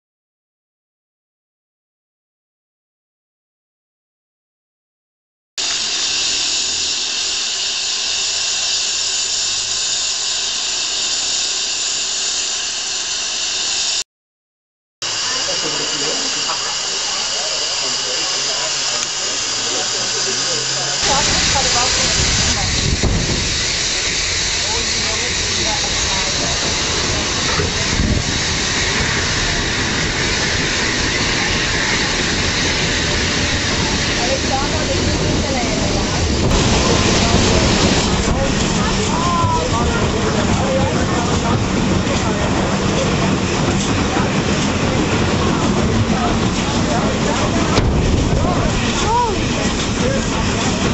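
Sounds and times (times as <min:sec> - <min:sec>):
steam locomotive hissing steam: 0:05.6 - 0:14.0, 0:15.0 - 0:50.9
train clatter: 0:15.1 - 0:50.9.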